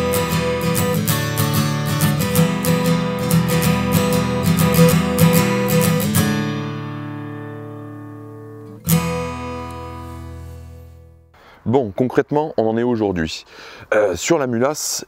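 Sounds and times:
strummed guitar: 0.0 - 11.3.

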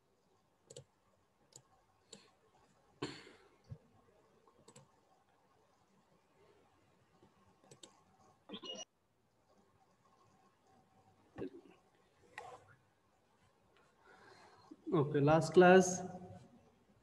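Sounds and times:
computer mouse clicks: 0.7 - 0.9, 1.5 - 2.3, 4.5 - 5.0, 7.2 - 8.8.

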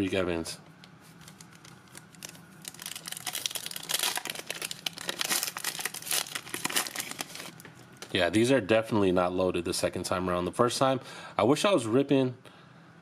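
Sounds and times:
wrapper tearing and crinkling: 1.1 - 8.1.

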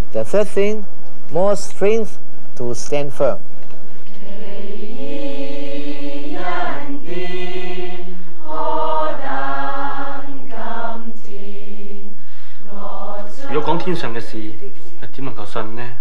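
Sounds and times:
group of voices singing: 4.1 - 14.7.

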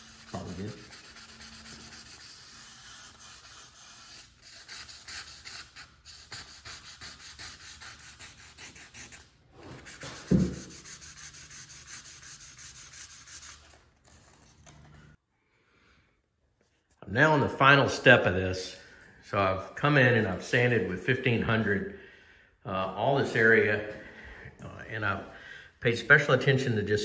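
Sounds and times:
sandpaper rubbing back and forth: 0.0 - 14.5.

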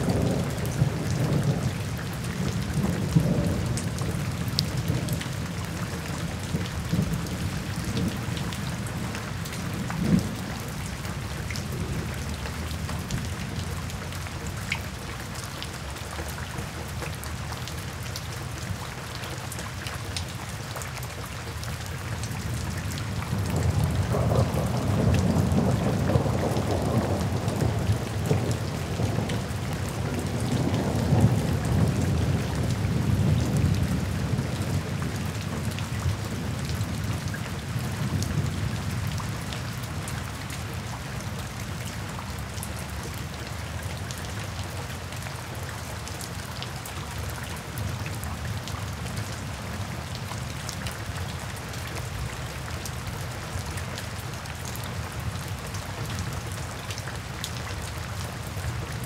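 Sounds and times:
steady rain: 0.0 - 59.0
rolling thunder: 23.3 - 34.8.

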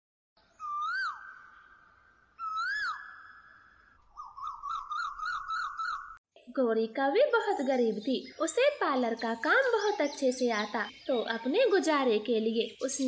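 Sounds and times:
whistled bird calls: 0.4 - 6.2.

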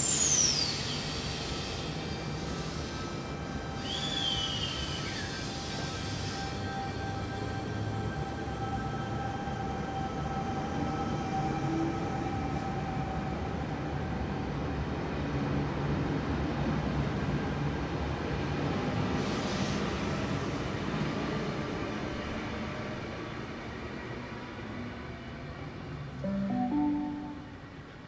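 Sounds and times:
electric train rumbling past: 0.0 - 28.0.

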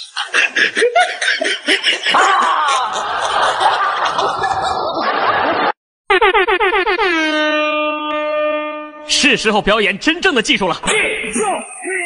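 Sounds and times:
many voices laughing: 0.0 - 5.8
ha-ha laughter bursts: 0.0 - 6.3.

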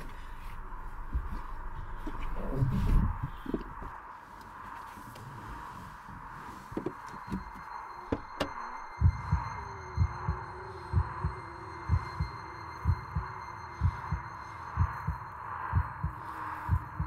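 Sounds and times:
heartbeat thumps: 0.0 - 4.0, 6.0 - 17.0
faint sustained drone: 0.0 - 17.0.

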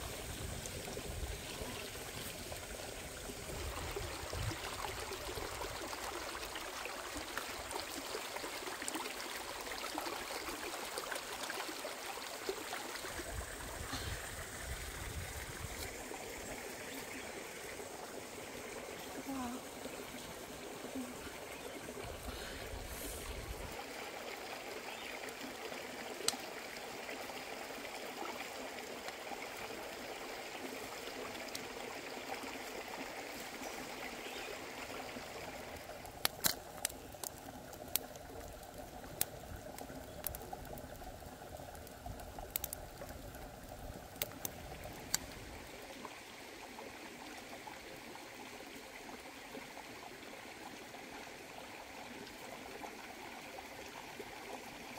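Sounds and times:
stream flowing over rocks: 0.0 - 54.9
fire popping and crackling: 35.5 - 45.7.

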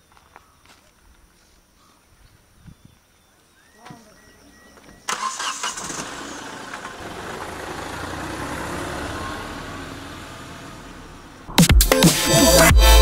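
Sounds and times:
car driving past: 5.5 - 11.5.

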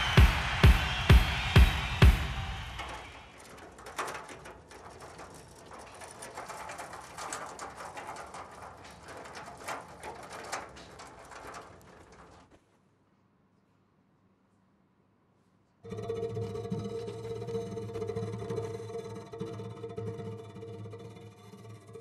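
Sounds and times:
metal cart rattling: 0.0 - 12.6.

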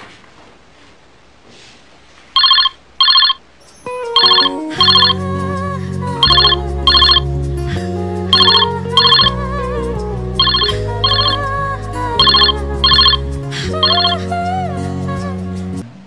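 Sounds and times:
mobile phone ringtone rings: 2.4 - 3.4, 4.2 - 5.2, 6.2 - 7.2, 8.3 - 9.4, 10.4 - 11.5, 12.2 - 14.2
ringtone melody with bass line: 2.4 - 3.4, 4.1 - 5.3, 6.2 - 7.3, 8.2 - 9.5, 10.4 - 14.3.

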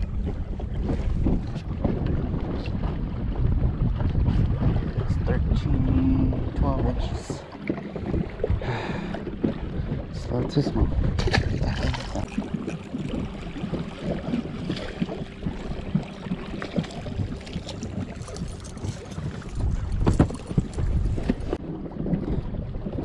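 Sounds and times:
water lapping at boat: 0.0 - 23.0
wind buffeting microphone: 0.0 - 23.0
fish splashing into water: 11.1 - 21.4.

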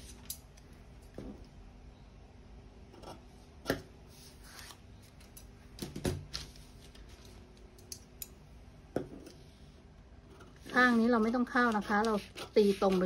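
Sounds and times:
scissors snipping paper: 11.1 - 13.0.

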